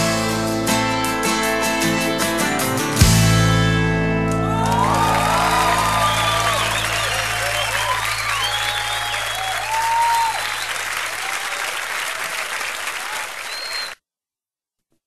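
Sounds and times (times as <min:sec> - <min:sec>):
crowd shouts and whoops: 0:04.2 - 0:13.9
audience applauding: 0:04.2 - 0:14.0.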